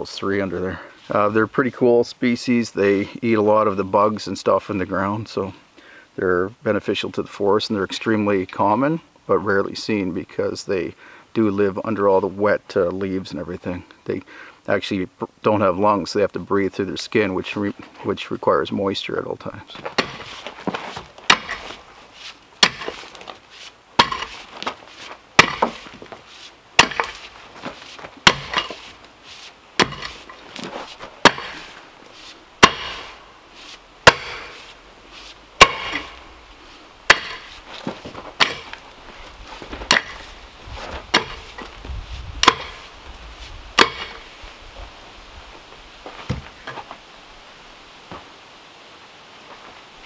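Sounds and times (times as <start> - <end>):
pickaxe striking stony ground: 19.8 - 21.8, 22.6 - 23.4, 24.0 - 24.8, 25.4 - 26.1, 26.8 - 29.0, 29.8 - 31.8, 32.6 - 33.2, 34.0 - 34.7, 35.6 - 36.3, 37.1 - 38.8, 39.6 - 40.4, 41.0 - 41.8, 42.4 - 42.9, 43.8 - 44.3.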